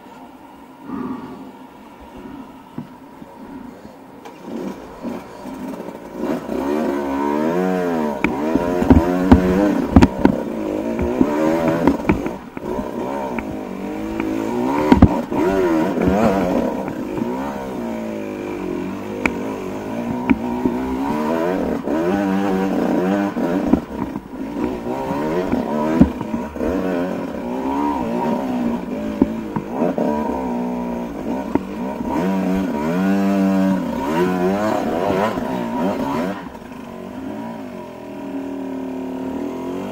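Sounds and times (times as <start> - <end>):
dirt bike engine revving: 4.3 - 39.9
bike knocking on rocks: 8.2 - 17.8, 18.5 - 30.2.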